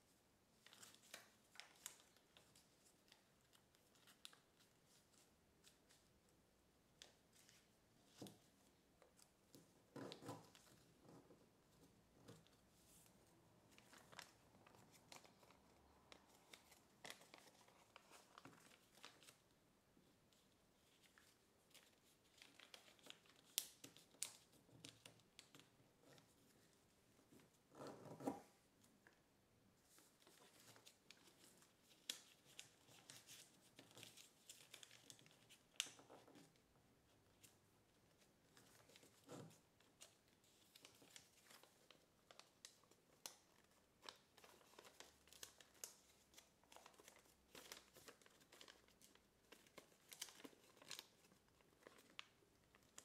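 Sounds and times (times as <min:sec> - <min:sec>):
paper crinkling and rustling: 0:00.6 - 0:06.2, 0:13.7 - 0:19.5, 0:20.3 - 0:27.5, 0:29.9 - 0:36.6, 0:37.2 - 0:53.0.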